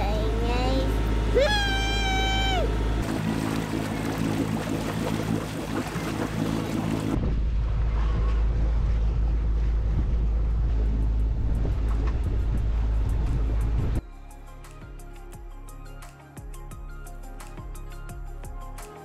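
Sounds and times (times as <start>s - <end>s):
boat engine running: 0.0s - 14.0s
water rushing in wake: 0.5s - 7.4s
wind rumble on microphone: 3.6s - 14.0s.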